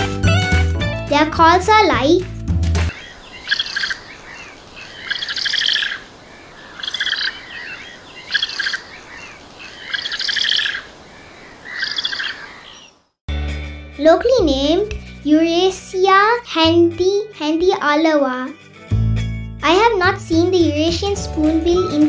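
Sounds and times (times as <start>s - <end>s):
bird rattling calls: 2.9s - 13.0s.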